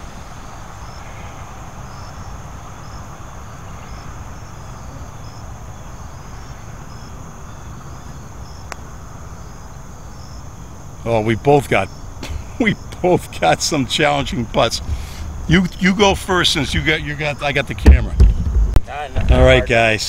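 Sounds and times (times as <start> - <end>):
insects chirping: 0.0 - 20.0
steady high insect trill: 0.0 - 20.0.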